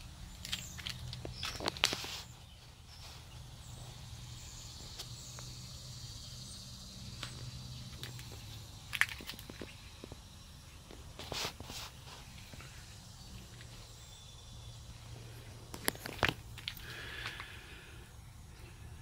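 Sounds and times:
light clicks and scuffs: 0.4 - 3.5.

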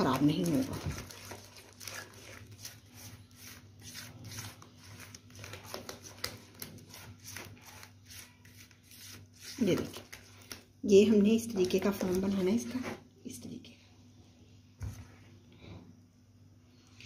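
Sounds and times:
spatula stirring wet batter: 0.0 - 13.1.

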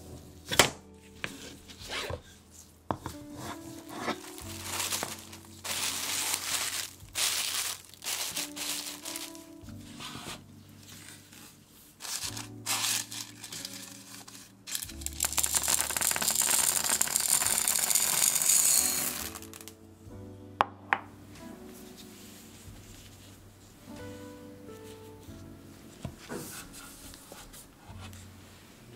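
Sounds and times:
soft background music: 0.0 - 28.9
plastic wrap crinkling: 3.5 - 19.8
ceramic beads rattling: 4.4 - 9.3, 12.0 - 19.7.

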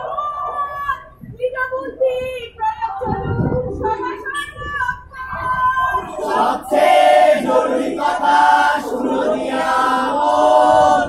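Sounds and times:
group singing in chorus: 6.0 - 11.0.

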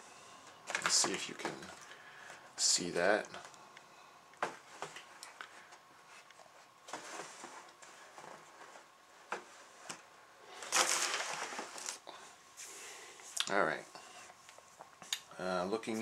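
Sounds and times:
plastic bag rustling: 10.5 - 12.1.

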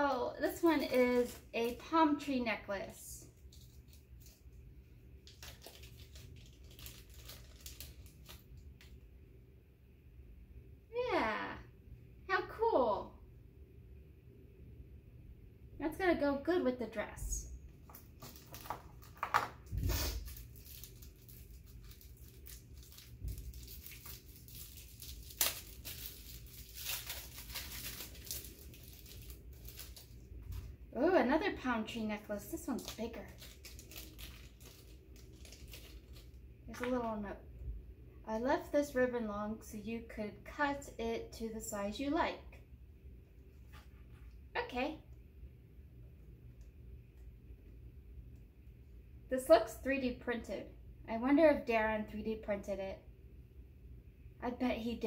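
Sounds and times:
gift wrapper crinkling: 0.4 - 1.9, 3.4 - 4.6, 5.2 - 9.0, 17.8 - 30.7, 32.4 - 36.9.

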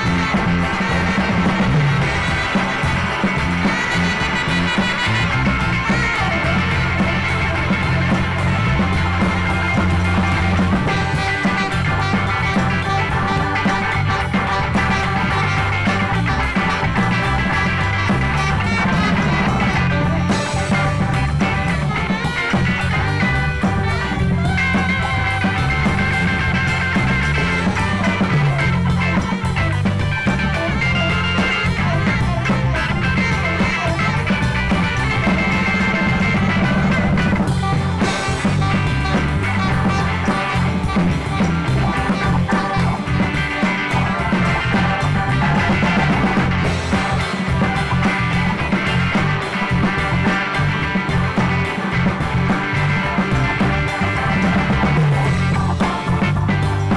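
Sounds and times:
live rock-funk band playing: 0.0 - 56.9.

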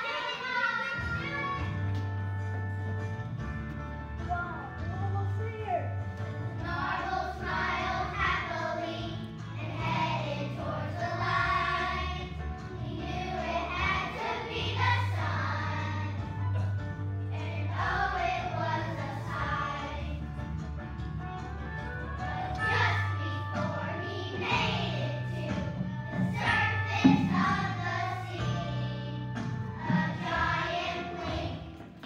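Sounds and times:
children's choir singing: 0.0 - 1.6, 6.6 - 16.6, 17.3 - 20.3, 22.3 - 32.0
instrumental accompaniment with bass: 1.0 - 31.7.

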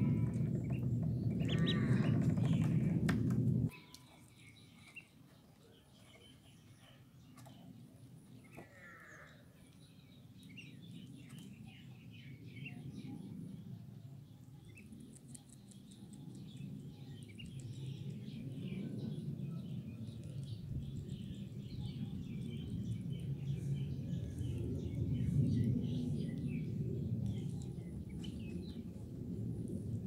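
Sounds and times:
ducklings peeping: 0.0 - 3.1
low rumble: 0.0 - 3.7, 16.4 - 30.0.

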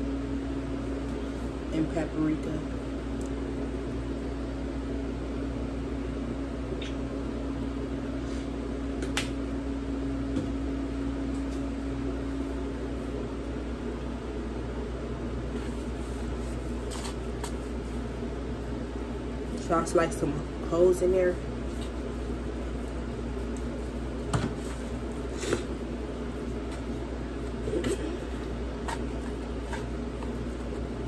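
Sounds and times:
kitchen appliance humming: 9.5 - 31.0.

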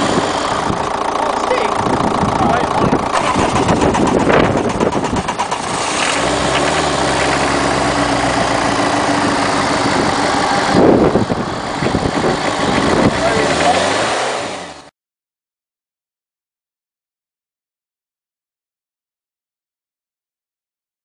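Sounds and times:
diesel engine idling: 0.0 - 14.9.

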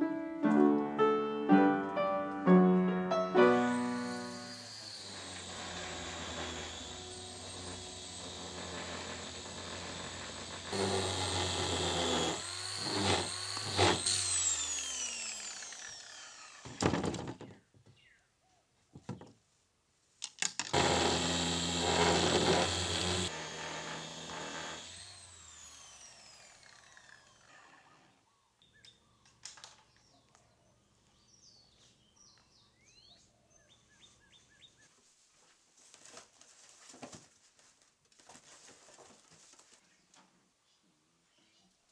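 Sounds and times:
power tool whining: 3.4 - 17.2, 20.7 - 28.1
faint clicks and rustles: 35.2 - 40.5.

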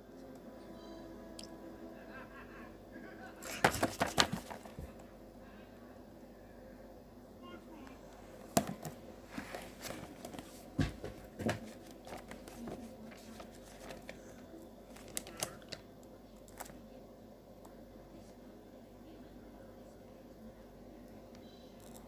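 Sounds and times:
handling rustling: 3.4 - 5.0, 8.5 - 15.5.

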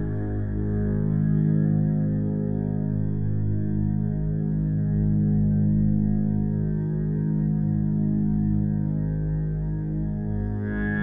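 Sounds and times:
slow held-note background music: 10.4 - 11.0.

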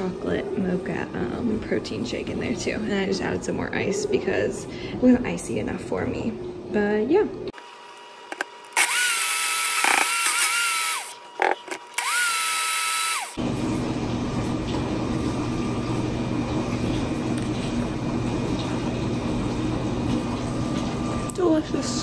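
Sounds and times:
dishwasher humming: 0.0 - 22.0
blender crushing ice: 8.3 - 13.4.

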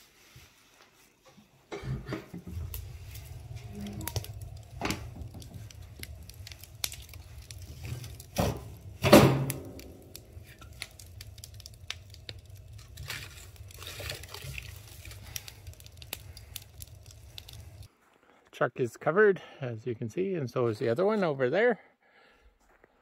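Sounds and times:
wood fire crackling: 0.0 - 18.4
loud knocks in stove: 8.3 - 9.8.

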